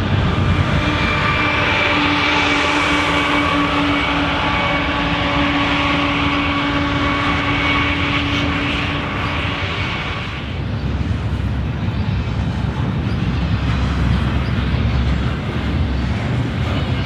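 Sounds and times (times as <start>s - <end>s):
droning tone: 0.0s - 17.0s
freight train cars rumbling: 0.0s - 17.0s.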